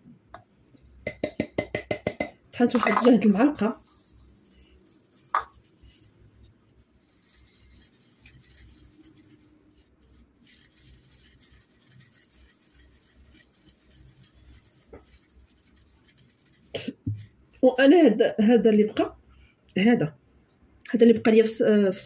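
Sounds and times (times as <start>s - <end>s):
powder sifted through plastic sieve: 2.6s - 18.1s.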